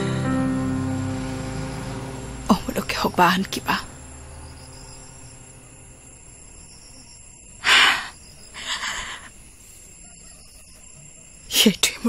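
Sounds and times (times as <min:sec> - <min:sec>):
faint high hiss: 0:00.0 - 0:12.0
woman breathing: 0:07.6 - 0:09.9.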